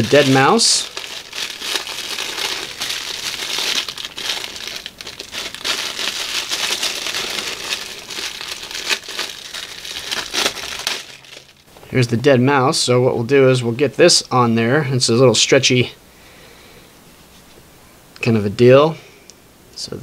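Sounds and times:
plastic bag crinkling: 0.0 - 11.7.

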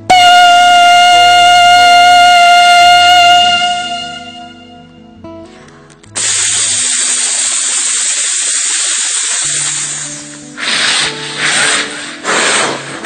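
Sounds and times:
faint tones: 0.1 - 5.3
person imitating train hiss: 6.2 - 13.0.

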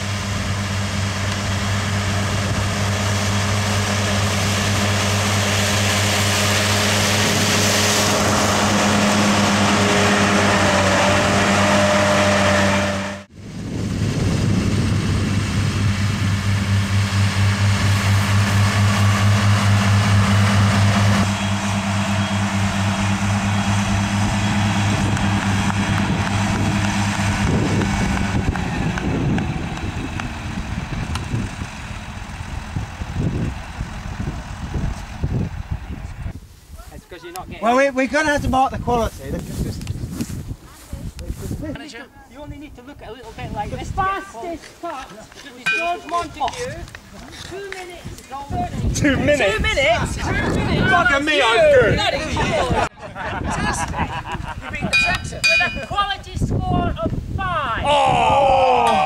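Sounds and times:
tractor diesel engine humming: 0.0 - 36.4, 54.8 - 56.4.

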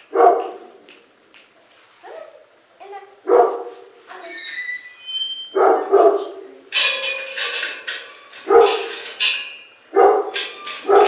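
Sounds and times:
dog barking: 0.1 - 0.8, 3.2 - 3.9, 5.5 - 6.4, 8.4 - 8.9, 9.9 - 11.0.

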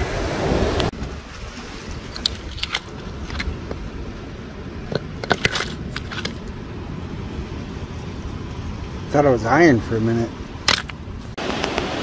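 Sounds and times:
stones clicking and knocking: 2.1 - 3.8, 4.9 - 6.5, 10.6 - 11.0.

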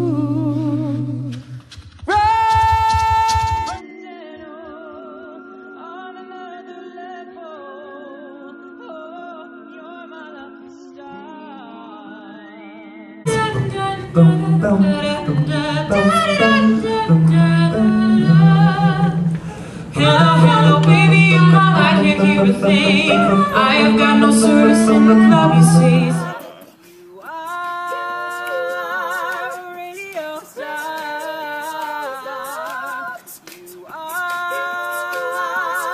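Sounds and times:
a cappella group singing in harmony: 0.0 - 35.9
sung bass line: 13.3 - 26.4.

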